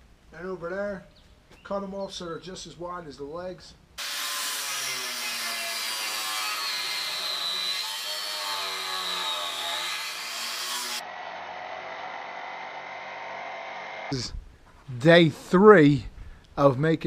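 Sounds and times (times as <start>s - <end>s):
angle grinder cutting steel: 4.0s - 11.0s.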